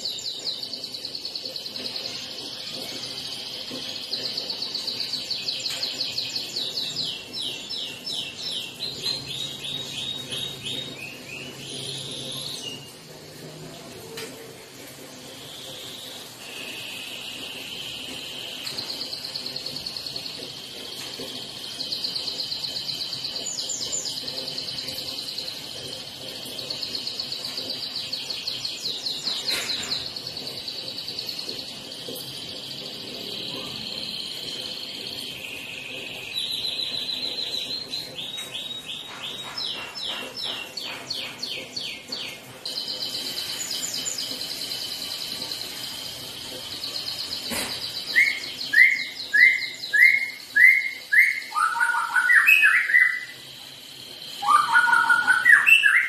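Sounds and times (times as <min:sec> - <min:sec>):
bird singing trills: 0:15.6 - 0:56.0.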